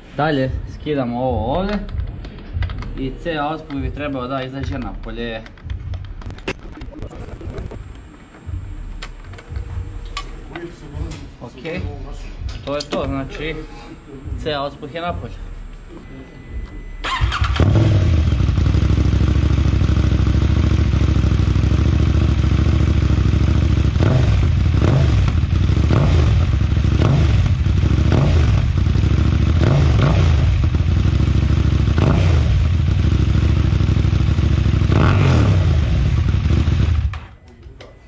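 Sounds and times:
motorcycle engine idling and revving: 17.0 - 37.4.

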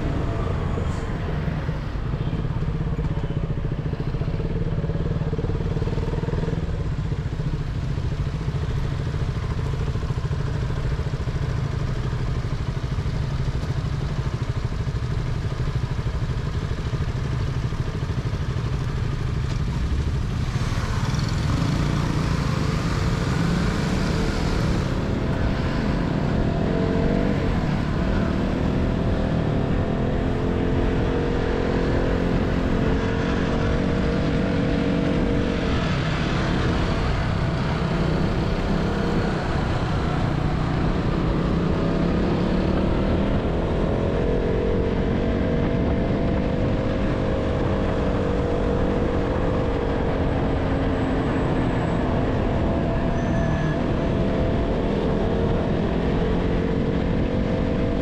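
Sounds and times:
motorcycle engine running: 0.0 - 58.0
wind and road rush: 0.0 - 58.0.

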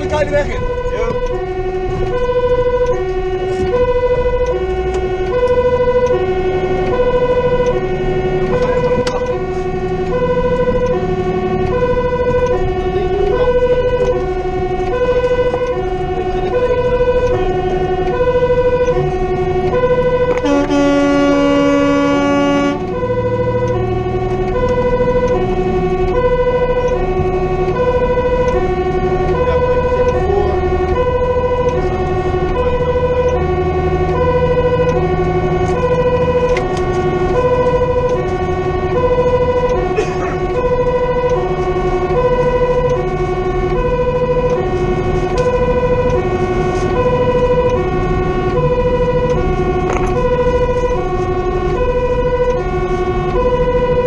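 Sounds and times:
truck engine: 0.0 - 54.0
two-tone fire engine siren: 0.0 - 54.0
air horn blast: 0.5 - 30.4.

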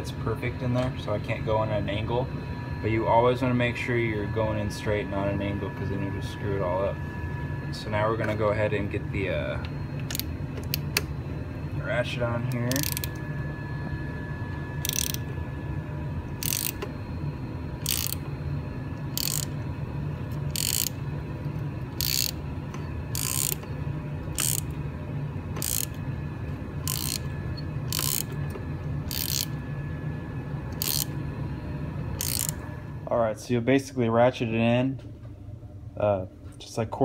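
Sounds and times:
steady low hum: 0.0 - 37.0
socket ratchet clicking: 10.0 - 11.1, 12.7 - 13.2, 14.8 - 15.2, 16.4 - 16.8, 17.8 - 18.2, 19.1 - 19.6, 20.5 - 21.0, 22.0 - 22.4, 23.1 - 23.6, 24.3 - 24.7, 25.6 - 26.0, 26.8 - 27.3, 27.9 - 28.4, 29.1 - 29.5, 30.7 - 31.1, 32.2 - 32.6.

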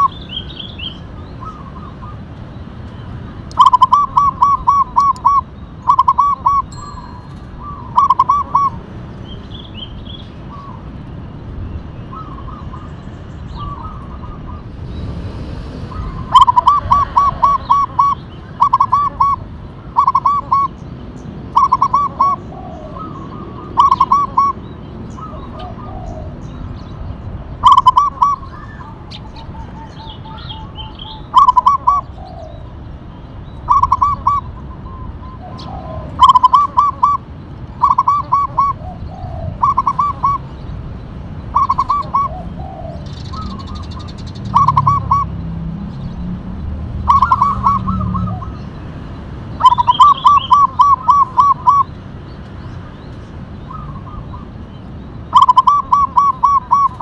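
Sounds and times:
dove cooing: 3.6 - 6.7, 7.6 - 8.8, 15.9 - 19.4, 20.0 - 20.7, 21.5 - 24.6, 25.2 - 26.4, 27.6 - 32.7, 33.7 - 40.5, 41.5 - 45.3, 47.0 - 48.6, 49.6 - 51.9, 55.3 - 57.0.

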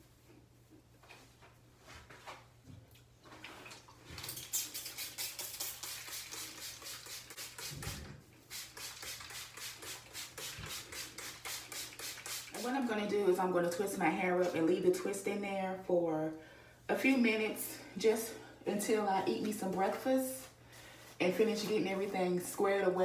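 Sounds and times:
spray bottle squirts: 4.2 - 12.6.

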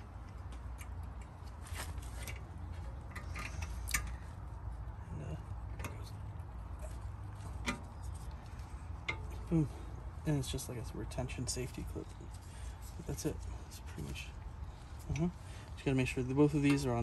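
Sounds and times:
low steady hum: 0.0 - 17.0
light metallic clicks and taps: 0.2 - 1.5, 2.2 - 4.2, 5.6 - 7.0.

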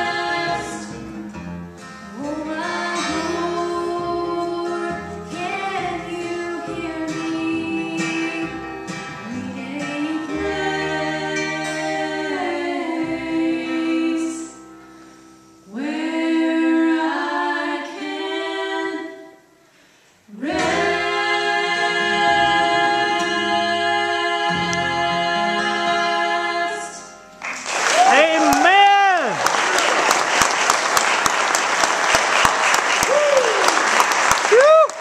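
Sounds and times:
unaccompanied harmony singing: 0.0 - 1.2, 2.1 - 14.6, 15.7 - 19.5, 20.3 - 27.2.

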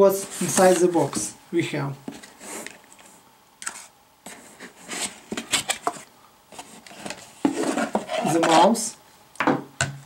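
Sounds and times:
cardboard taps scrapes and rustles: 0.2 - 1.3, 2.1 - 8.6.

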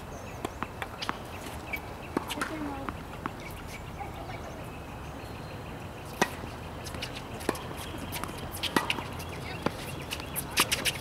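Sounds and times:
racquets striking tennis ball: 6.1 - 11.0
ball bouncing on hard court: 7.0 - 11.0.

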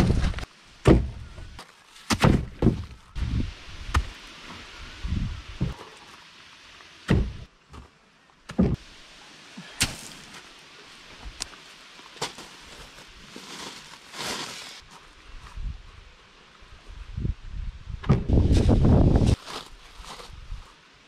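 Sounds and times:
rocks thudding: 0.0 - 1.4, 2.0 - 3.0, 7.1 - 7.9, 8.5 - 8.8, 9.8 - 10.4
rocks knocking: 2.1 - 3.0, 7.1 - 7.9
gravel crunching: 9.7 - 15.6.

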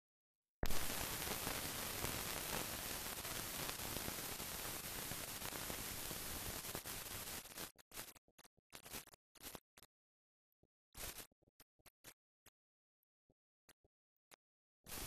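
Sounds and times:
film soundtrack hiss and static: 0.6 - 8.2.

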